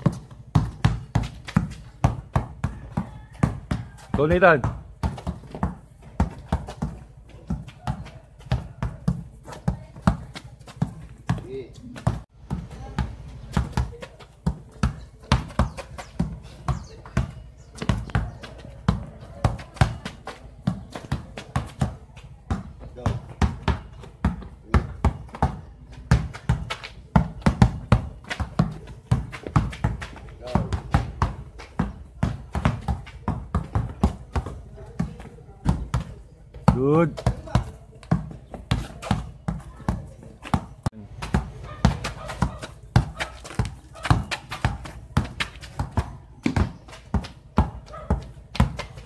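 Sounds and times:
basketball bouncing on pavement: 0.0s - 49.0s.

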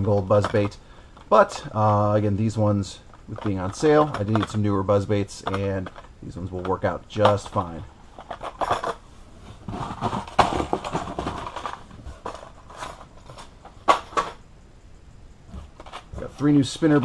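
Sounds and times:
sharp clicks and knocks: 5.4s - 9.0s
plastic and cardboard rustling: 5.4s - 14.4s.

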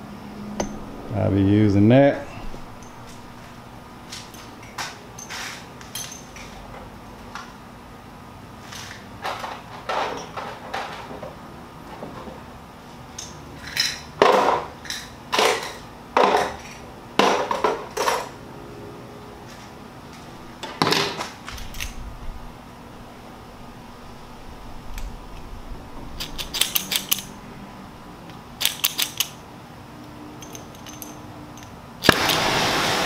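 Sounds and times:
metal tools clinking: 2.2s - 6.7s, 13.2s - 14.2s, 26.2s - 27.4s, 30.4s - 31.8s.

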